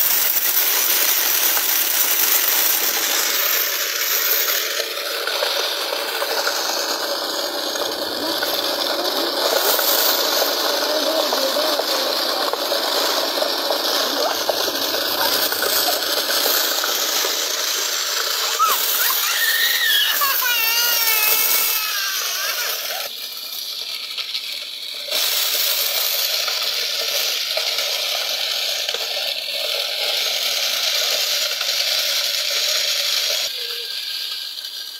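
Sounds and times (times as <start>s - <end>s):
wooden machine whirring: 0.0s - 34.9s
high wavering voice: 18.4s - 23.1s, 33.5s - 34.0s.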